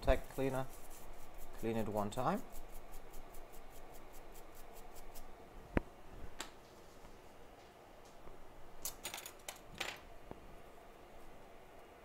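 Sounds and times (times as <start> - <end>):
small brush scrubbing: 0.0 - 5.3.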